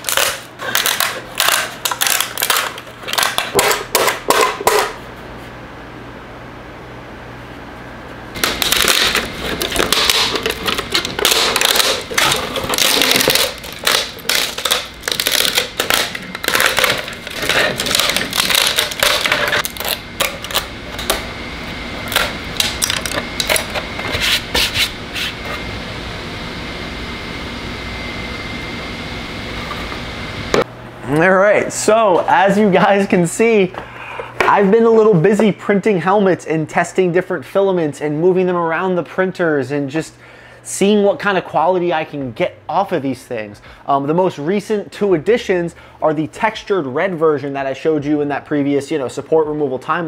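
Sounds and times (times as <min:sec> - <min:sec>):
plastic cracking and clicking: 0:00.0 - 0:04.8, 0:08.4 - 0:21.2.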